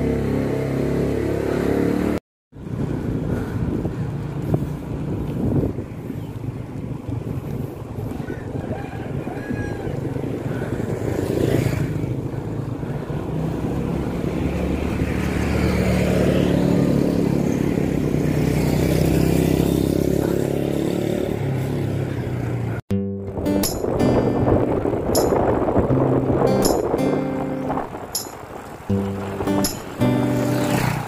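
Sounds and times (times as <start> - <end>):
wind rumble on microphone: 2.6 - 15.6, 23.4 - 31.0.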